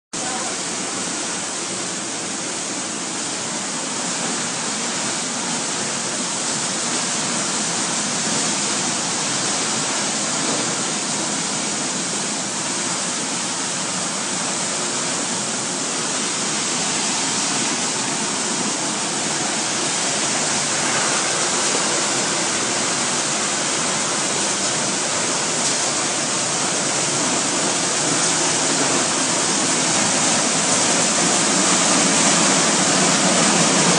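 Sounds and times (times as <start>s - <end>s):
sorting machine hissing: 13.2s - 33.9s.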